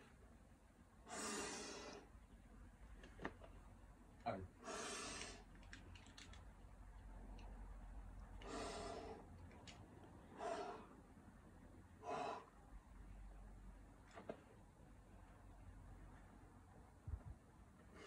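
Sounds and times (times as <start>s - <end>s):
forceful breaths with effort: 1.0s - 2.1s, 4.6s - 5.5s, 8.4s - 9.3s, 10.2s - 11.0s, 11.9s - 12.6s.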